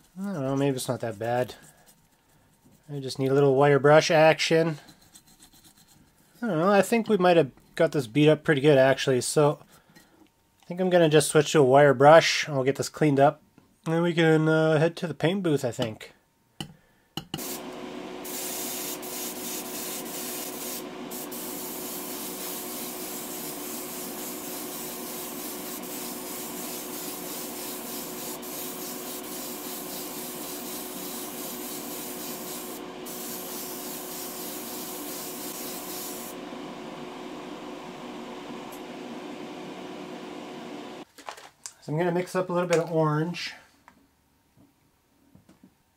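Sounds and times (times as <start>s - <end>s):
spray gun hissing: 17.4s - 36.5s
extraction fan hum: 17.4s - 41.0s.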